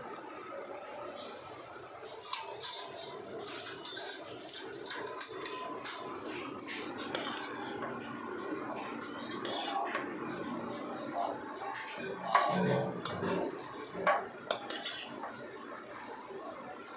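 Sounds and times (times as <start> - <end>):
ladle scraping pan: 2.2 - 8.0, 8.8 - 15.4.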